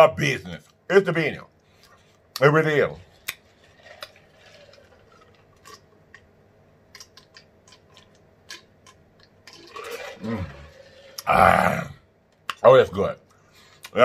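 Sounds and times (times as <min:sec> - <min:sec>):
person gulping: 0:03.3 - 0:05.9, 0:09.2 - 0:12.0.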